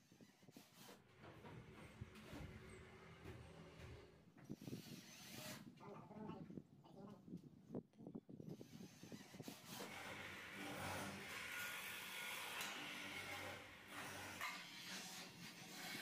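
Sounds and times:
cordless drill driving a screw: 4.5 - 5.7, 8.5 - 16.0.

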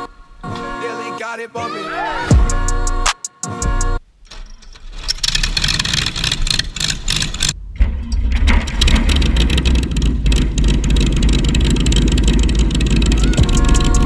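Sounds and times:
starter cranking engine: 5.2 - 7.6, 8.4 - 14.0
aircraft engine running: 8.8 - 14.0.

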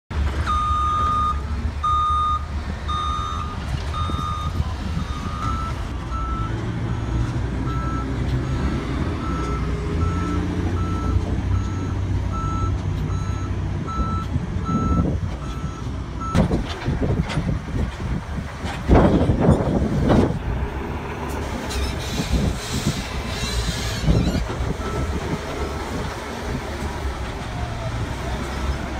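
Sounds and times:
diesel engines rumbling: 0.1 - 28.9
backup alarms beeping: 0.5 - 16.4.

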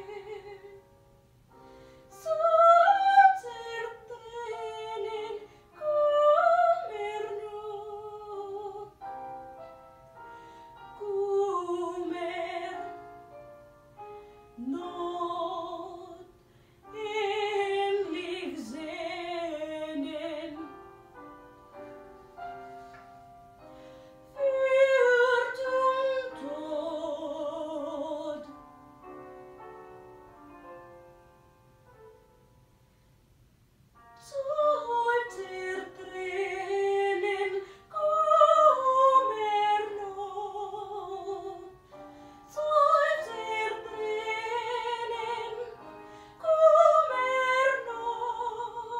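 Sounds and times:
piano: 0.0 - 48.9
woman singing operatically: 2.1 - 9.0, 10.9 - 13.0, 14.6 - 16.3, 16.9 - 20.7, 24.4 - 28.5, 34.2 - 41.8, 42.5 - 48.9.

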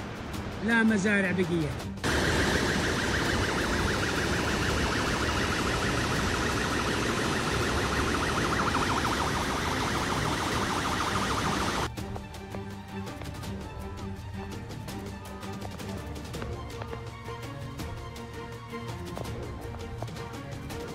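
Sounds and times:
pulsing siren-like alarm tone: 2.0 - 11.9
rushing floodwater roar: 2.0 - 11.9.

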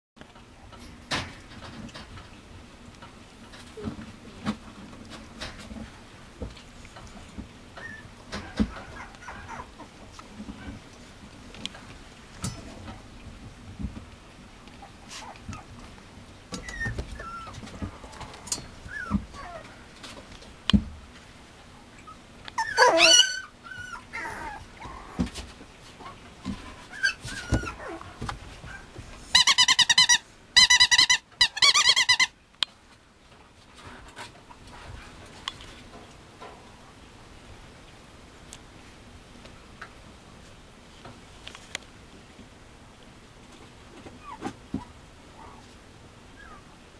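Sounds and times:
puppy whining yelp: 7.8 - 9.9, 14.8 - 15.7, 16.6 - 19.7, 22.0 - 25.2, 26.9 - 32.3, 44.2 - 45.6, 46.4 - 46.7
puppy high squeals: 16.6 - 17.6, 18.9 - 19.6, 22.1 - 25.0, 26.9 - 28.0, 28.7 - 32.3
puppy scuffling among toys: 22.6 - 36.8.

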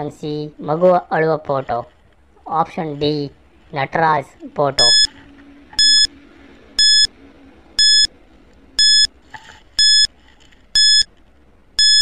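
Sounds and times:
timer beeping: 4.8 - 5.1, 5.8 - 6.1, 6.8 - 7.1, 7.8 - 8.1, 8.8 - 9.1, 9.8 - 10.1, 10.8 - 11.1, 11.8 - 12.0.

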